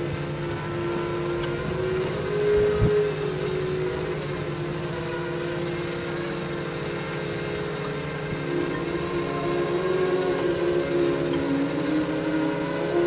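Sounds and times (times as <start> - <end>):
quadcopter motors humming: 0.0 - 13.0.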